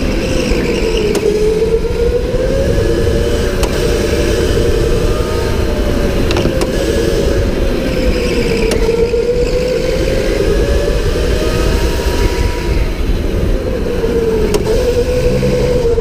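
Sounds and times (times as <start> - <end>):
electric motor whining: 0.0 - 16.0
low rumble: 9.0 - 16.0.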